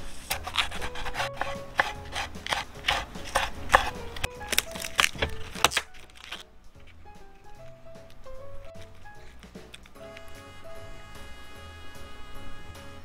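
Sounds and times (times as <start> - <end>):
knife chopping on wooden board: 0.3 - 5.8.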